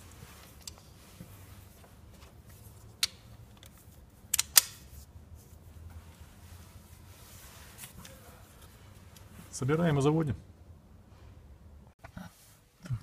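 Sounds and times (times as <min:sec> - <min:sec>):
metallic clicks of hand tools: 0:04.3 - 0:04.8.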